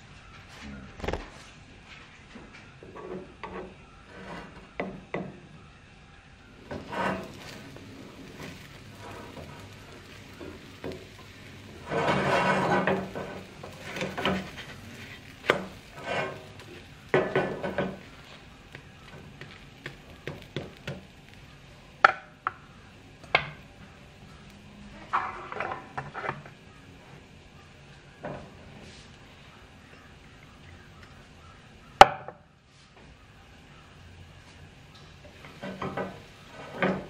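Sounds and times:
spatula scraping frying pan: 2.8 - 4.8, 6.6 - 21.6, 24.3 - 26.6, 35.3 - 37.0
spatula sharp taps: 18.7 - 21.1.

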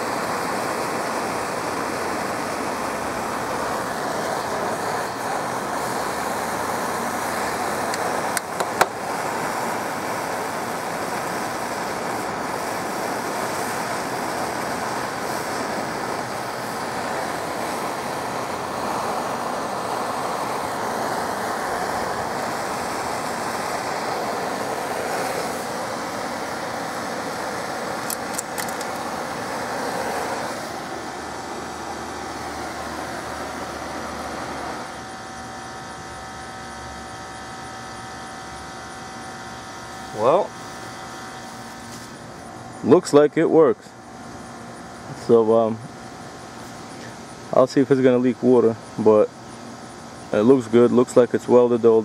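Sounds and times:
torch flame hissing: 0.0 - 52.0
sharp clicks: 28.0 - 29.1.

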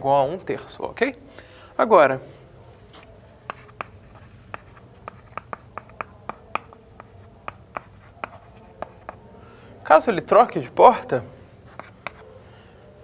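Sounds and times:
chalk tapping on chalkboard: 3.5 - 9.2, 11.7 - 12.3.

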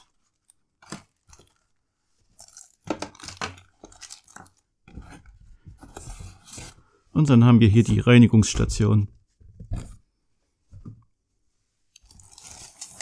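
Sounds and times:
packaging crinkling and rustling: 0.0 - 4.8, 11.9 - 13.0.

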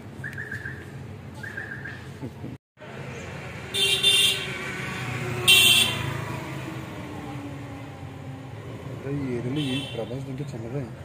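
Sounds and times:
low traffic rumble: 0.0 - 11.0
vehicle passing: 2.8 - 11.0
car horn toots: 3.8 - 4.5, 5.5 - 6.1, 9.6 - 10.1.

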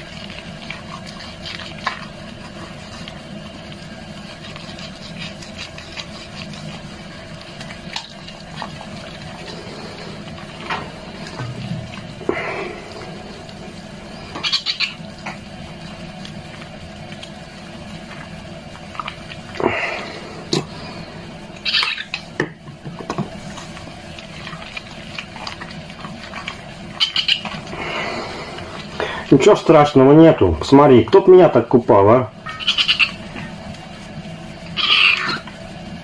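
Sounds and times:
young cat meowing: 34.8 - 35.5.

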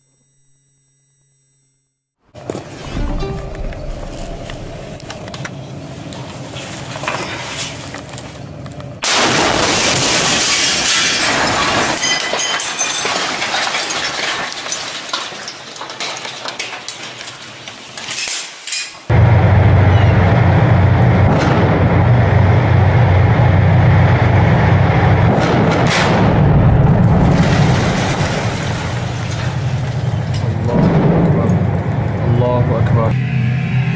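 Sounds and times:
explosion blast: 2.7 - 5.2, 19.1 - 29.4, 30.7 - 31.8
loud low rumble: 2.8 - 6.0, 19.1 - 33.9.

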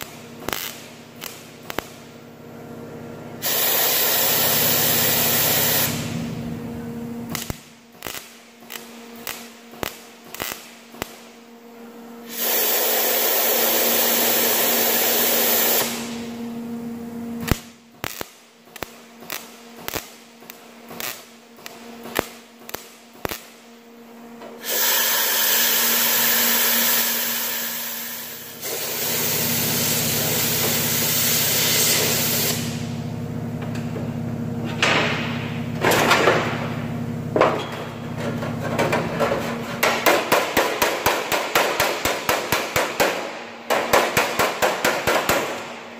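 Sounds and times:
short tack welding zaps: 0.0 - 2.1, 3.4 - 6.2, 7.3 - 11.3, 12.2 - 16.2, 17.4 - 23.6, 24.5 - 33.0
welding arc: 0.0 - 2.2, 3.4 - 6.4, 7.3 - 11.4, 12.2 - 16.3, 17.4 - 23.7, 24.6 - 33.2.

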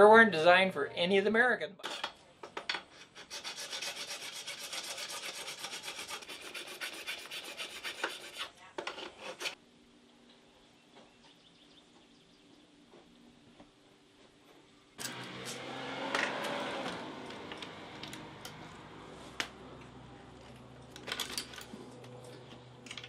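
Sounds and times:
hand file rasping on metal: 2.9 - 9.6.

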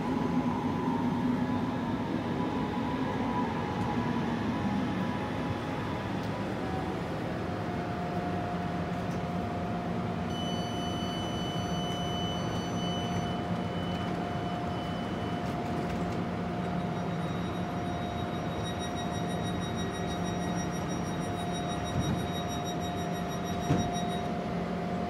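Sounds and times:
train equipment humming and whining: 0.0 - 25.0
high steady tone: 10.3 - 15.2, 16.8 - 24.3.

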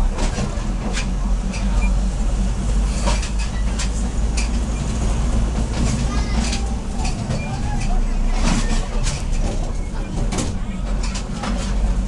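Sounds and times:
railcar engine rumble: 0.0 - 12.0
wheels clicking on track: 0.0 - 12.0.

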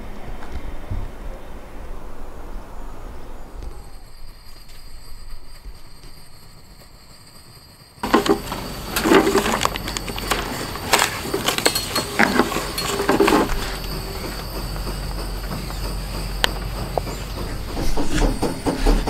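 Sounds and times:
knocks and clinks of dripper and cups: 8.0 - 15.8.

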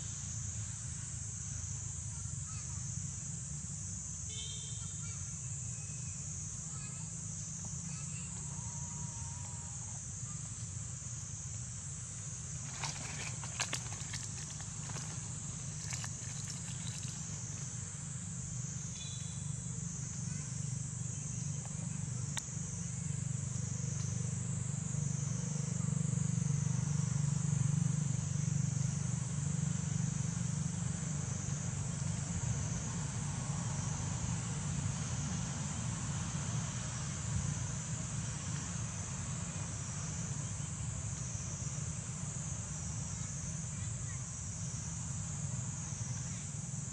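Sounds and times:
insect chorus: 0.0 - 46.9
low steady rumble: 8.1 - 40.0.

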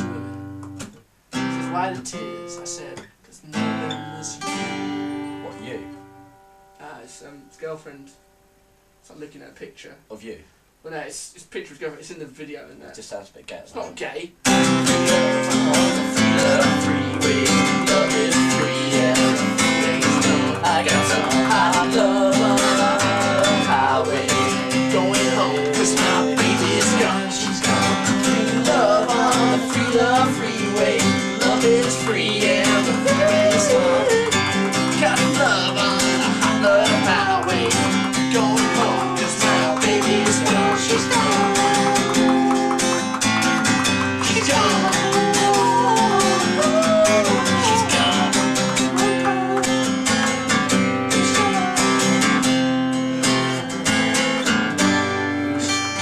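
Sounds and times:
acoustic guitar strumming: 0.0 - 9.3, 13.8 - 56.0
people singing: 14.6 - 43.0, 44.2 - 49.8.

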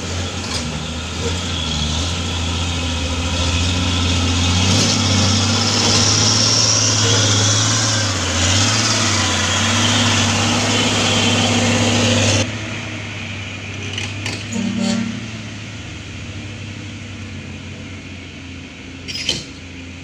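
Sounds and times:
distant engine hum: 0.0 - 20.0
truck diesel engine at low speed: 0.0 - 20.0.

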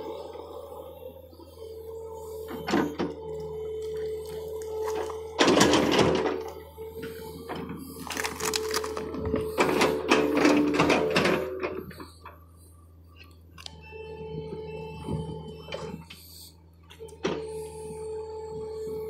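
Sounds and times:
excavator engine drone: 0.0 - 19.0.

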